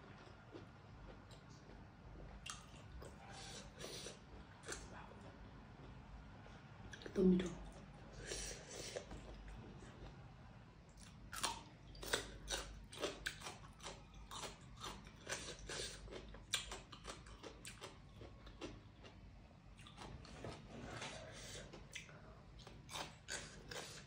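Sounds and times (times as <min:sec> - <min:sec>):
person chewing food: 0:00.0 - 0:06.0, 0:10.9 - 0:24.0.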